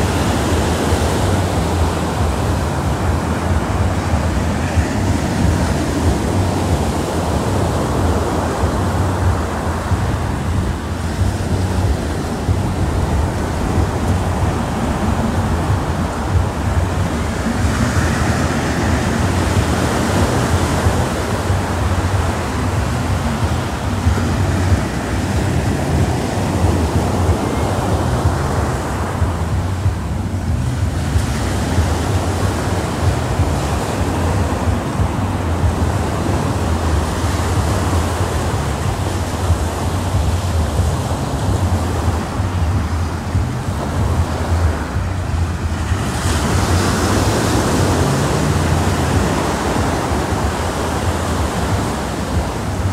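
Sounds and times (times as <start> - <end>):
small waves breaking on beach: 0.0 - 52.9
wind rumble on microphone: 0.0 - 52.9.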